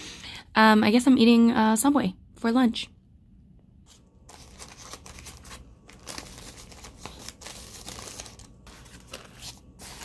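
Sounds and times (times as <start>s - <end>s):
paper wrapper rustling and crinkling: 4.0s - 10.0s.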